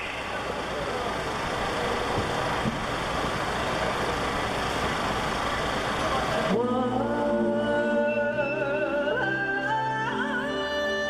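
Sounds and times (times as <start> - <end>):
crowd chatter: 0.0 - 11.0
music with sustained notes: 6.5 - 11.0.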